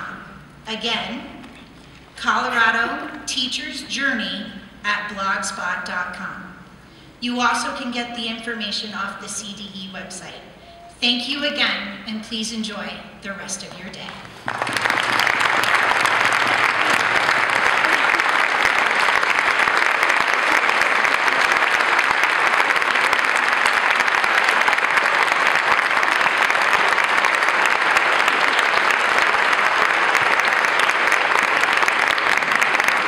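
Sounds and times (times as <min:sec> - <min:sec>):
large audience applauding: 0:14.1 - 0:33.0.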